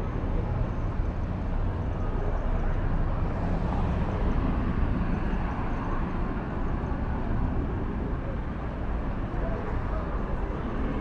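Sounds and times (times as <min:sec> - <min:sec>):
city street low rumble: 0:00.0 - 0:11.0.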